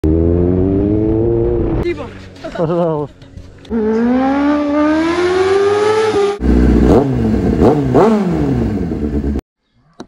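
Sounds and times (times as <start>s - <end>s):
motorcycle engine accelerating: 0.0s - 2.2s, 3.6s - 9.4s
motorcycle engine revving in blips: 3.7s - 9.4s.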